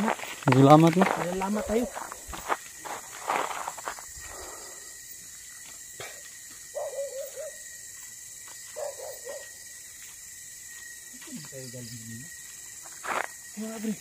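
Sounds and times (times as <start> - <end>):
wavering animal calls: 6.7 - 7.6.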